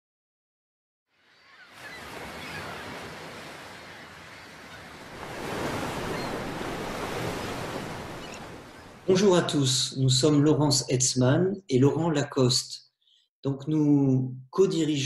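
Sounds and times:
ocean waves breaking: 1.2 - 9.7.

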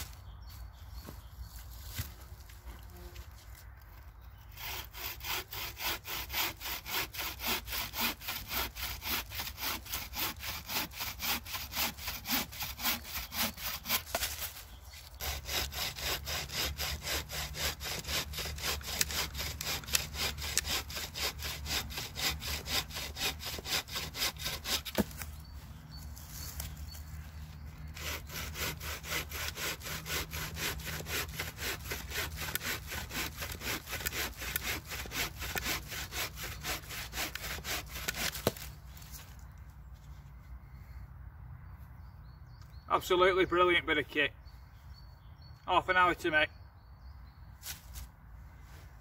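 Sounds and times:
saw cutting through branch: 4.4 - 25.5, 27.5 - 39.4.

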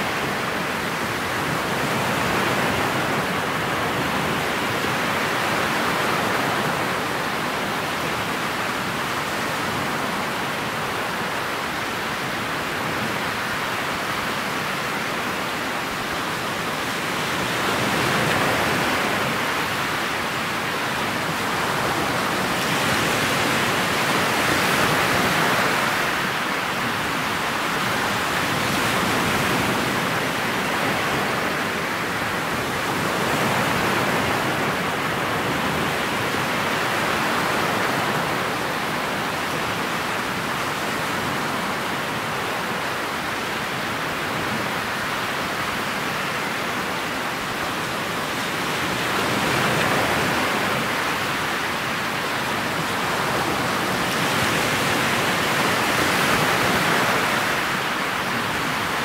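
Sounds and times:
wind and water rushing past boat: 0.0 - 59.0.

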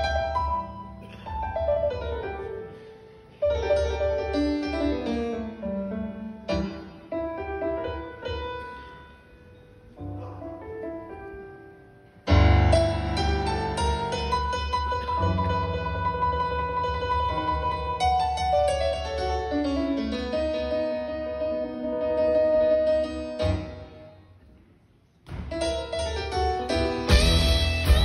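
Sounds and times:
keyboard piano solo: 10.0 - 24.0.

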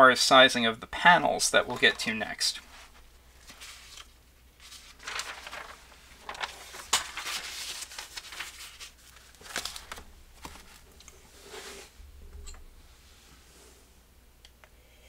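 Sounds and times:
paper pages rustling: 1.7 - 11.9.

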